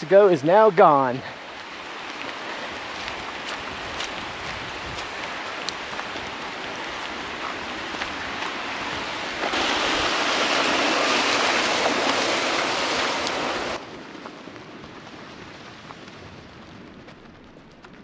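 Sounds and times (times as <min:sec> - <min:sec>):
creek water rushing: 0:00.0 - 0:13.8.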